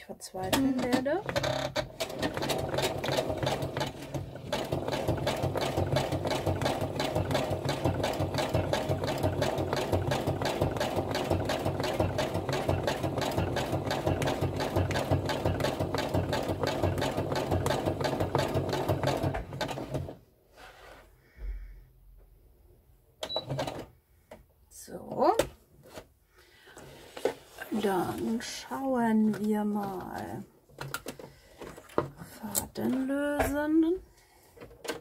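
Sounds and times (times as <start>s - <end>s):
sewing machine stitching: 0.5s - 20.2s.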